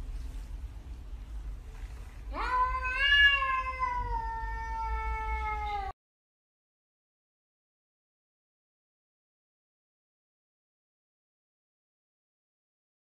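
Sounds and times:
cat meowing: 2.3 - 6.0.

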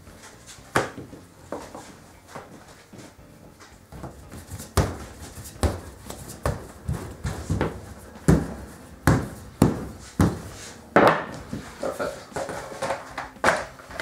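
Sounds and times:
rolling pin thumping on dough: 4.0 - 11.7.

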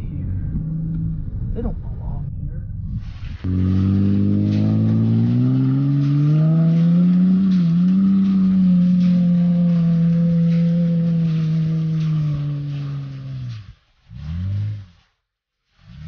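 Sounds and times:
truck engine revving hard: 3.3 - 15.2.

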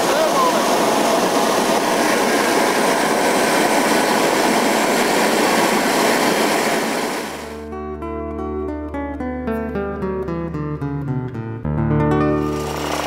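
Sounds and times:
jet engine roaring rush: 0.0 - 7.6
acoustic guitar music: 7.5 - 13.0.

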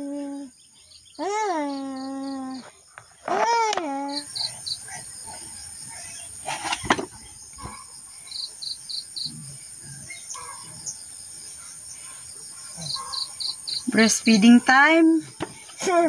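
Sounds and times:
insects chirping: 0.0 - 16.0.

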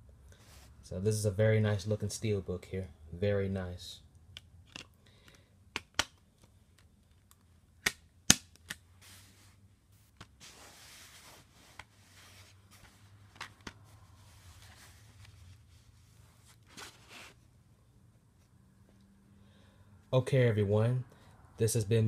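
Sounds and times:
soft handling rustle: 0.4 - 1.0, 9.0 - 19.2.

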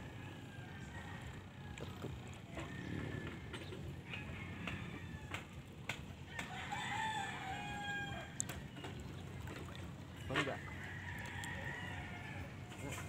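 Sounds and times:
rooster crowing: 4.1 - 5.5, 6.4 - 8.4, 10.6 - 12.5.

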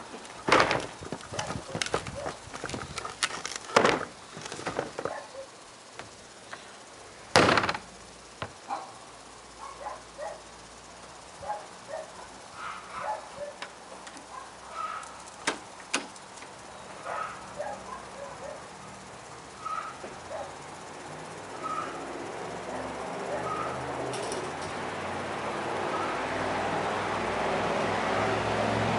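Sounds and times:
trash cart lid slamming: 0.4 - 1.0, 3.7 - 5.1, 7.4 - 7.8.

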